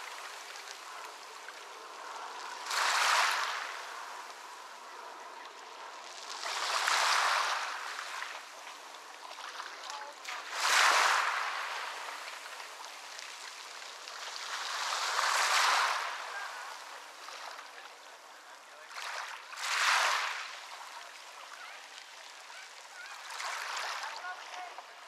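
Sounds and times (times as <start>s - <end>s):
ocean waves on a beach: 0.0s - 25.0s.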